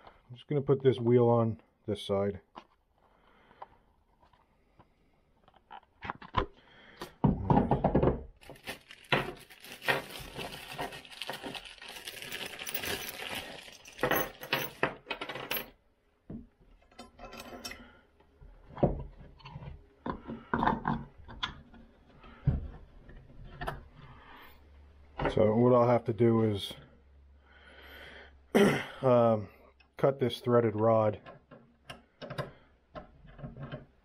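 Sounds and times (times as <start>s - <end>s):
plastic bag rustling: 8.4s - 14.5s
metal nuts clinking on wood: 12.1s - 15.8s.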